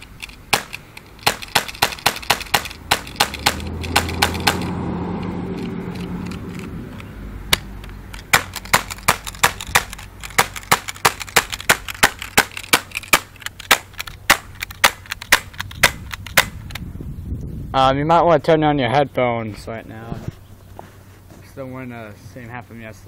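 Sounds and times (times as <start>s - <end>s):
airsoft pistol shots: 0.5s - 4.7s, 8.3s - 16.6s.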